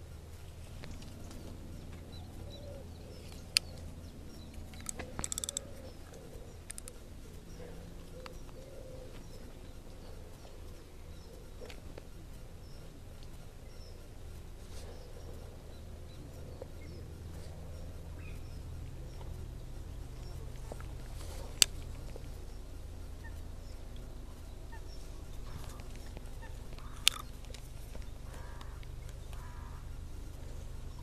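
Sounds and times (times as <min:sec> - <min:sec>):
steady low rumble: 0:00.0 - 0:31.0
sharp clicks: 0:04.5 - 0:07.0, 0:25.4 - 0:29.5
waterfowl calling: 0:24.7 - 0:27.3, 0:28.2 - 0:29.9.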